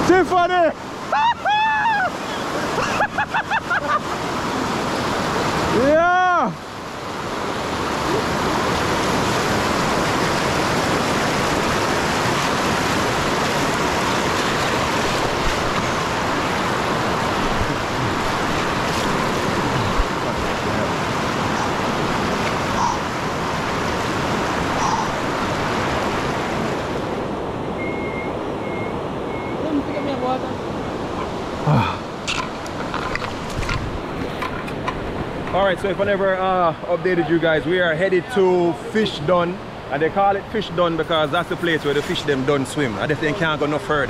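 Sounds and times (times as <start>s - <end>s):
river rapids rushing over rocks: 0.0s - 27.7s.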